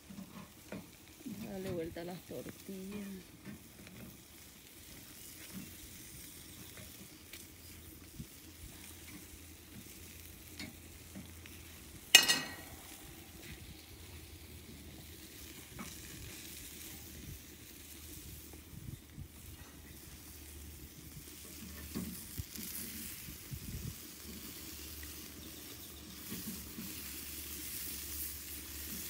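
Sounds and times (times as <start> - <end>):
fire crackling: 0.0 - 29.0
food sizzling over fire: 0.0 - 29.0.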